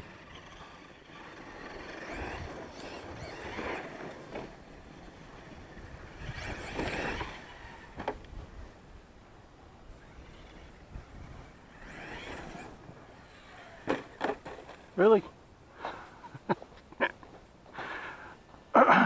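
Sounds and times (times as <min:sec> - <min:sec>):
toy truck motor revving: 0:00.0 - 0:08.2, 0:10.0 - 0:14.9.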